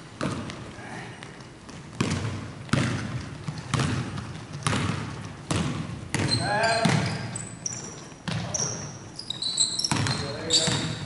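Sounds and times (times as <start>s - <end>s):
basketball bouncing on hardwood floor: 0.2s - 0.7s, 1.7s - 7.4s, 8.2s - 8.9s, 9.6s - 11.0s.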